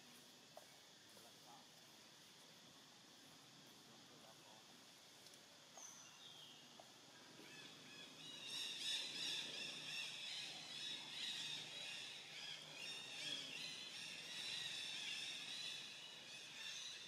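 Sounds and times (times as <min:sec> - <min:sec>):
many birds chirping: 0:05.8 - 0:17.0.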